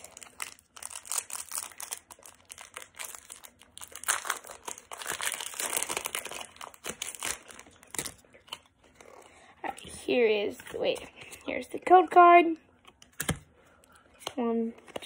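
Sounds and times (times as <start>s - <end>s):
foil wrapper crinkling and tearing: 0.0s - 8.7s.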